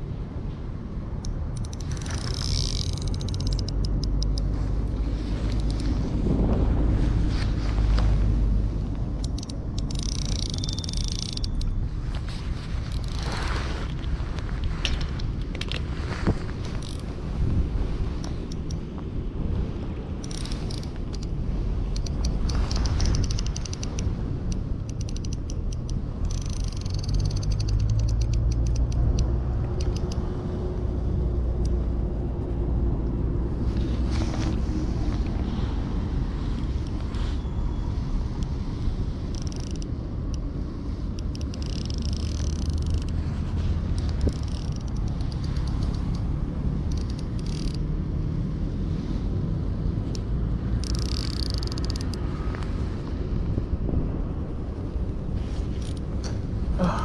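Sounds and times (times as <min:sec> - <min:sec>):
wind rumble on microphone: 0:00.0 - 0:57.0
fishing reel clicking: 0:01.2 - 0:04.5, 0:09.2 - 0:11.7, 0:12.9 - 0:13.2, 0:16.8 - 0:17.0, 0:20.2 - 0:21.3, 0:21.9 - 0:30.2, 0:39.3 - 0:40.4, 0:41.1 - 0:43.2, 0:43.9 - 0:47.9, 0:50.1 - 0:52.2.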